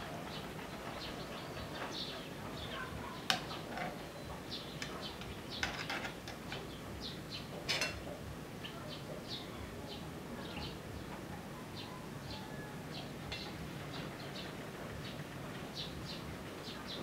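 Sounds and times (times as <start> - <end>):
birds chirping: 0.0 - 17.0
cutlery clinking on a plate: 5.6 - 6.6, 7.6 - 8.1.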